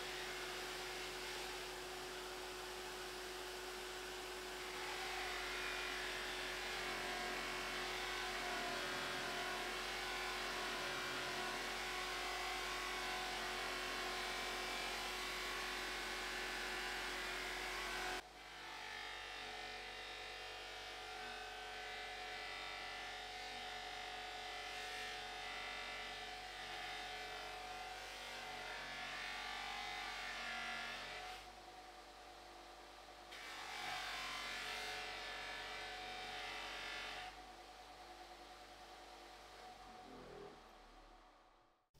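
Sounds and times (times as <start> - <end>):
bench polisher motor whirring: 0.0 - 18.2.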